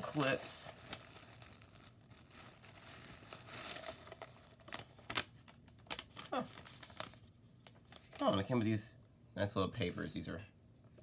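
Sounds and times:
plastic wrapping crinkling: 0.0 - 8.4.

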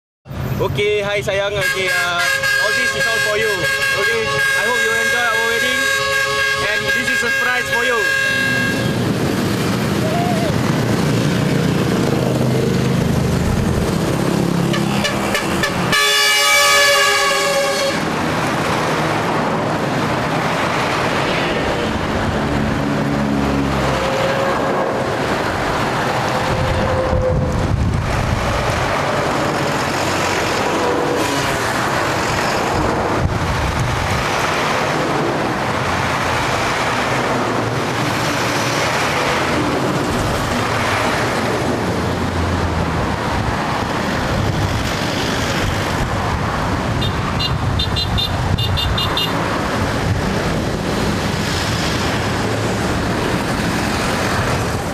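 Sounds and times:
trucks passing on highway: 0.3 - 54.9.

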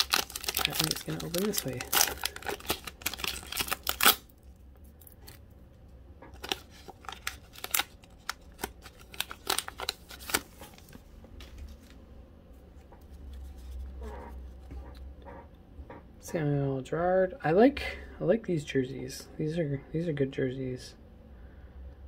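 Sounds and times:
cards being handled: 0.0 - 4.2, 6.3 - 12.0
foil wrapper crinkling: 0.0 - 5.4, 6.3 - 11.9.

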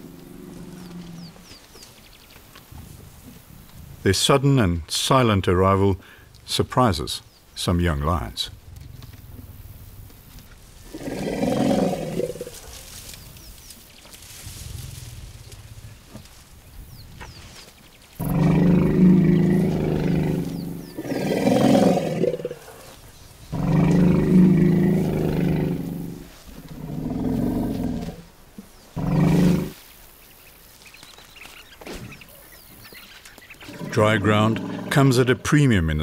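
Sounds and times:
lions growling: 0.0 - 1.6, 10.8 - 12.9, 18.2 - 28.3, 29.0 - 29.8, 33.6 - 35.4.

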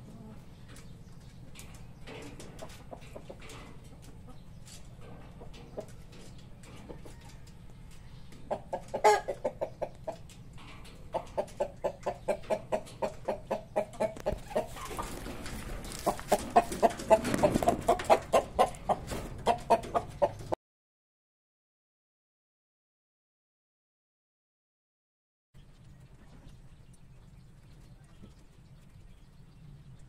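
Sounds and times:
chickens clucking: 0.0 - 20.6.

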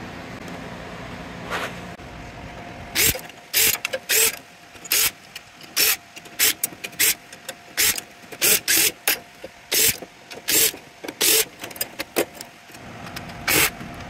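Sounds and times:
cordless drill bursts: 3.0 - 5.2, 5.8 - 7.2, 7.8 - 9.1, 9.7 - 11.5, 13.5 - 13.8.

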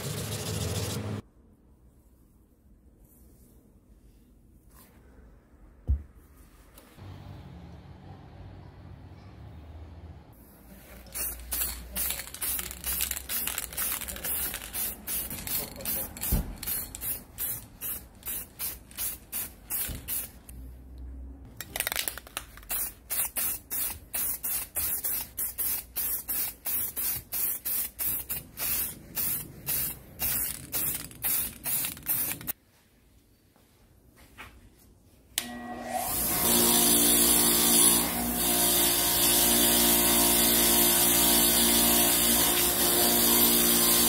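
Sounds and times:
spray can hissing bursts: 11.0 - 20.5, 22.7 - 32.5.

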